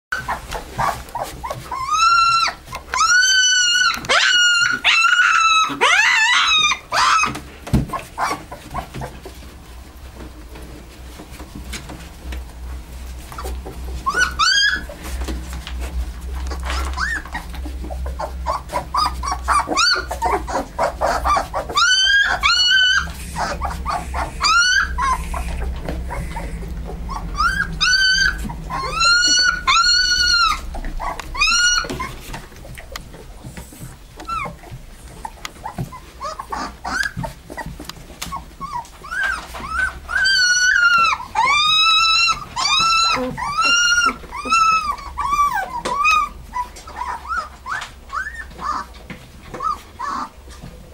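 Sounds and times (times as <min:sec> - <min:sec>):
puppies whining and squealing: 0:00.1 - 0:12.1, 0:12.8 - 0:50.9
low hum: 0:12.5 - 0:34.2.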